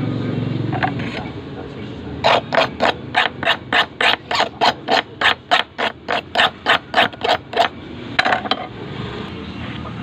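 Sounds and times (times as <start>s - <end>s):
rhythmic hand scraping strokes: 2.2s - 7.8s.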